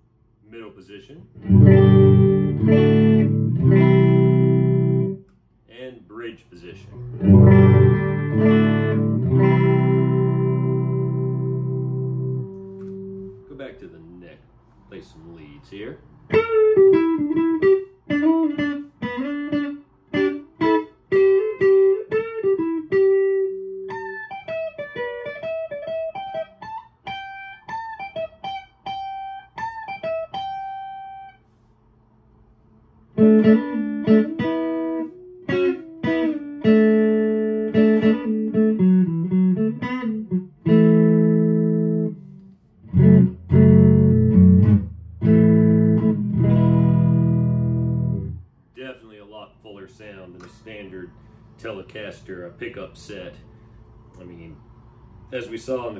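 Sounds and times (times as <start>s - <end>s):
clean electric guitar playing: 1.2s - 5.3s, 6.7s - 13.6s, 16.2s - 31.4s, 33.1s - 48.5s.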